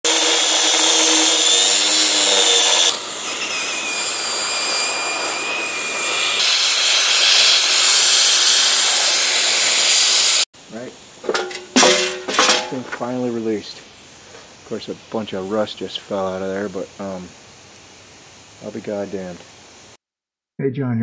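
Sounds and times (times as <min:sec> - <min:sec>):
angle grinder cutting steel: 0:00.1 - 0:10.4, 0:11.2 - 0:13.5
gas cutting torch hiss: 0:00.1 - 0:11.8, 0:12.6 - 0:20.0.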